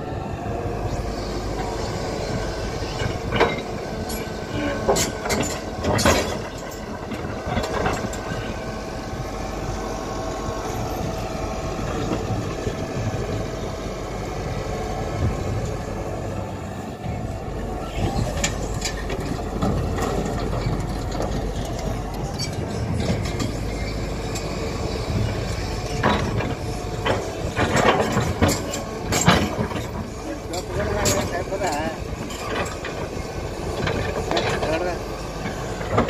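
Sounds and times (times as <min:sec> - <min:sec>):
excavator diesel engine running: 0:00.0 - 0:36.0
hydraulics working: 0:00.0 - 0:36.0
soil and stones clattering: 0:25.8 - 0:36.0.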